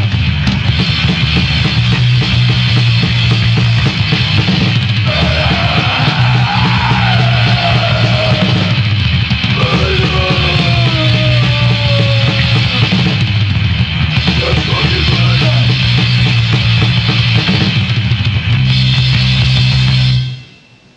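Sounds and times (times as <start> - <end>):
fast drumming: 0.0 - 20.1
distorted guitar and bass: 0.0 - 20.6
punk band playing: 0.0 - 20.6
shouted vocals: 5.1 - 8.9, 9.5 - 13.2.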